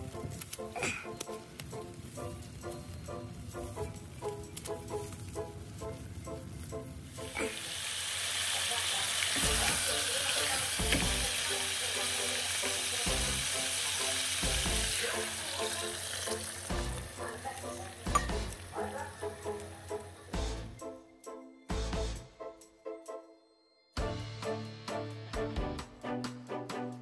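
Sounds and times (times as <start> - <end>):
soft background music: 0.0 - 8.1, 9.1 - 27.0
meat sizzling in a pot: 6.7 - 20.6
water pouring: 7.2 - 18.8.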